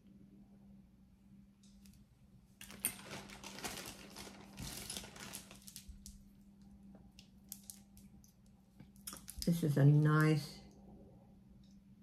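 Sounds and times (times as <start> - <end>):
necklace rustling: 2.6 - 6.2.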